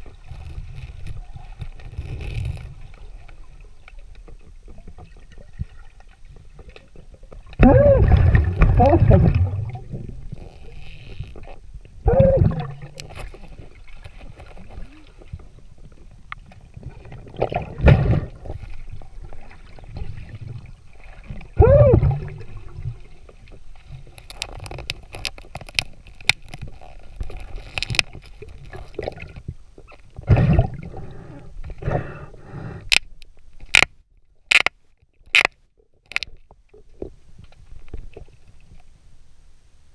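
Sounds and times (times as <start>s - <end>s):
low underwater rumble: 0.0s - 24.2s
underwater bubbling and gurgling: 0.0s - 33.8s
sharp clicks and knocks: 32.9s - 36.4s.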